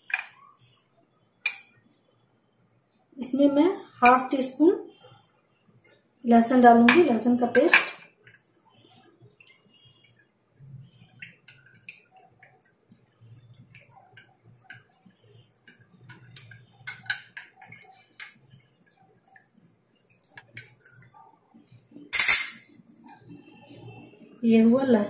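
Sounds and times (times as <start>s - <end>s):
spoon clinking against glass: 1.4s - 1.8s, 22.1s - 22.6s.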